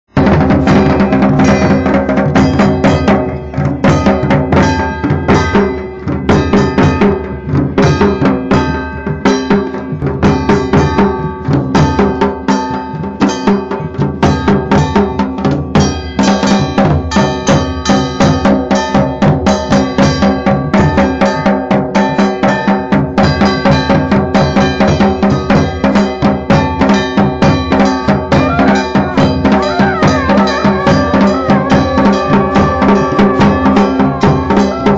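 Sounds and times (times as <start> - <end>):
drums beating fast rhythm: 0.1 - 34.9
sustained pitched instrument tones: 28.1 - 34.9.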